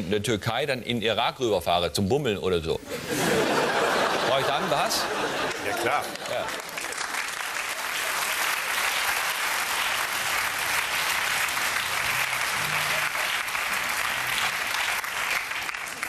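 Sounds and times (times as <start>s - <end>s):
audience applauding: 3.5s - 16.0s.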